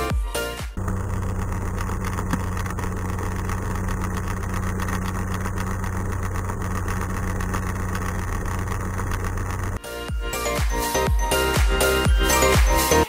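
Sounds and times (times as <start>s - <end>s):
aircraft engine idling: 0.8s - 9.8s.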